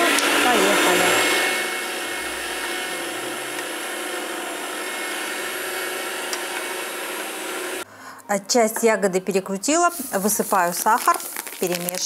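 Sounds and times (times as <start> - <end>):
electric meat grinder running: 0.0 - 7.8.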